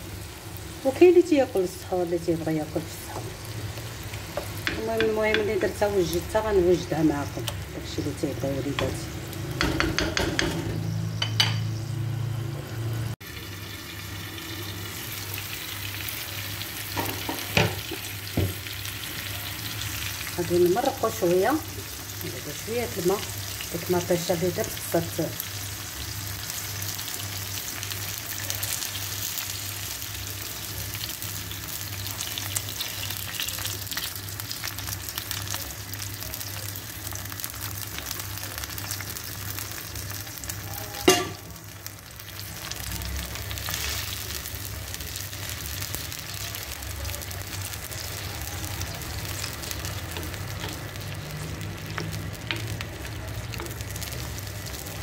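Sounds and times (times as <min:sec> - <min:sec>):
sauce sizzling and bubbling: 0:00.0 - 0:55.0.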